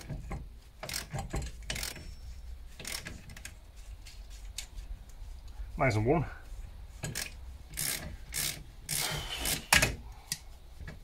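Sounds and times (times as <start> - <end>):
wrench ratcheting clicks: 0.8 - 2.0, 7.0 - 10.4.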